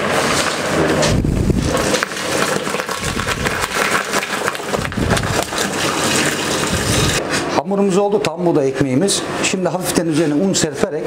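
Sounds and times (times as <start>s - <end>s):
bakery machinery noise: 0.0s - 11.0s
water pouring into steel bowl: 1.6s - 7.2s.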